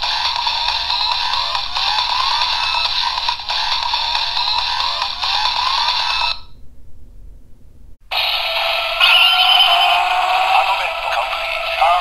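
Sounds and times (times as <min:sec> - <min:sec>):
toy electronic music with rising tones: 0:00.0 - 0:06.5, 0:08.1 - 0:12.0
loud electronic jingle: 0:08.1 - 0:12.0.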